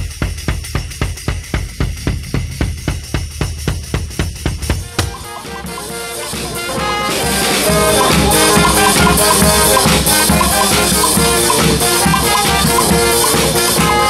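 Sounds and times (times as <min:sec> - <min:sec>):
steady drum beat: 0:00.0 - 0:14.0
brass band playing: 0:04.8 - 0:14.0.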